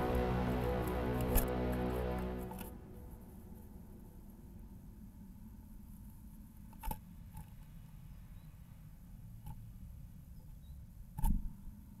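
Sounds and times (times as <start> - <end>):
low steady rumble: 0.0 - 5.8.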